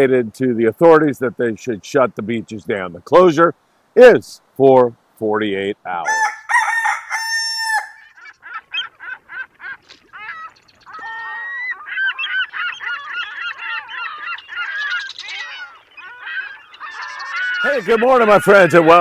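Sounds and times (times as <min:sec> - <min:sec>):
birds calling: 0:05.9 - 0:19.0.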